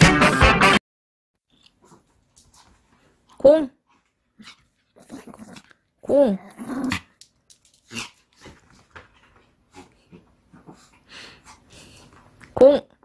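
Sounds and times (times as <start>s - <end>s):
dog growling: 4.4s - 7.2s.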